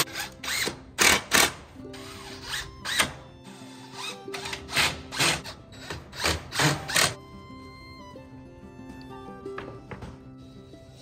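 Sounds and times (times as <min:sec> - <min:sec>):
drill driving screws into wood: 0:00.0 - 0:07.2
faint background music: 0:00.0 - 0:11.0.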